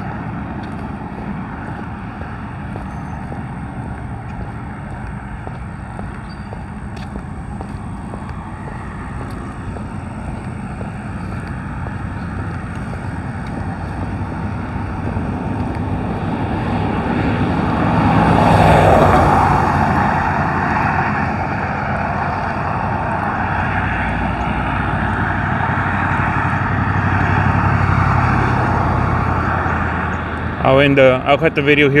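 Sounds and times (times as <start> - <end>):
road traffic noise: 0.0 - 32.0
vehicle passing: 0.0 - 32.0.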